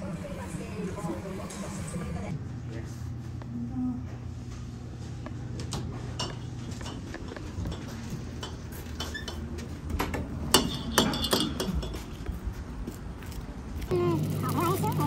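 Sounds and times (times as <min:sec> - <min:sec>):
steady low hum: 0:00.0 - 0:15.0
dishes and cutlery clinking: 0:06.1 - 0:09.6, 0:10.5 - 0:12.3.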